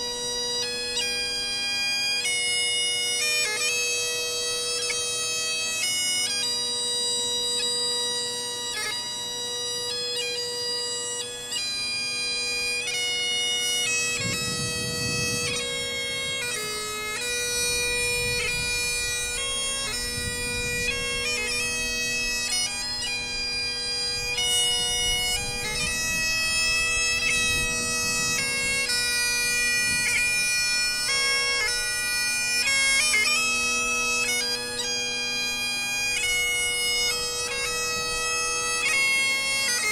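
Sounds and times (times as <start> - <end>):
bagpipe drones: 0.0 - 39.9
bagpipe melody: 0.0 - 39.9.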